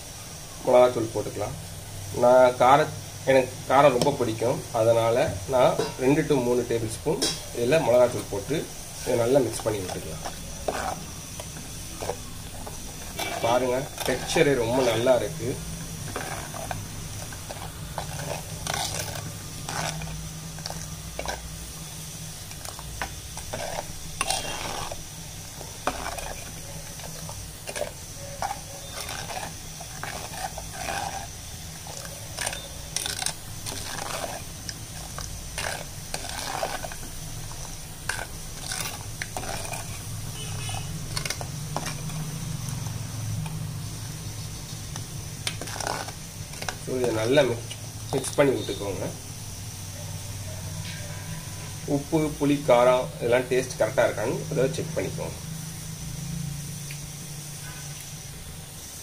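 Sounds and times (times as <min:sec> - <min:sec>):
ladle clinking and scraping pot: 0:05.6 - 0:06.5, 0:07.1 - 0:21.7, 0:22.4 - 0:43.6, 0:45.4 - 0:47.2.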